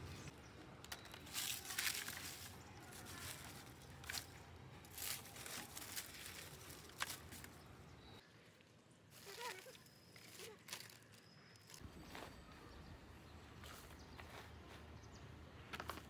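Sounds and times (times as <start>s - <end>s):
dry leaves rustling and crackling: 0.9s - 7.7s, 9.1s - 12.2s.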